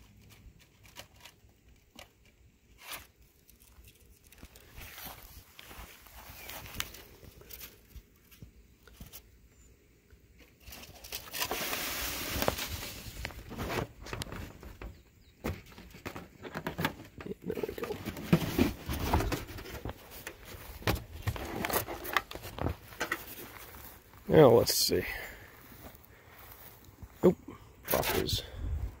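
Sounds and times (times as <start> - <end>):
handling rustling at microphone: 10.6 - 24.3.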